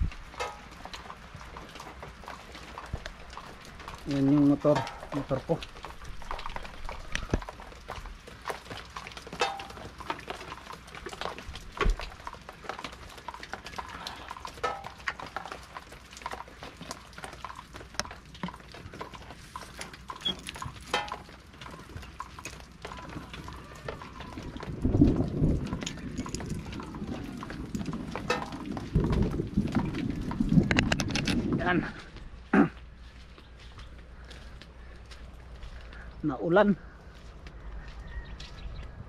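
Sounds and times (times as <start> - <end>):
raindrops tapping on metal roof: 0.0 - 36.7.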